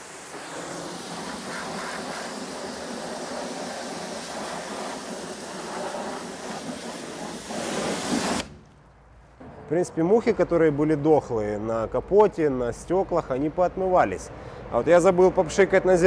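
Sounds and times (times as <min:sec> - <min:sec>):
pressure washer spraying water: 0:00.0 - 0:08.8.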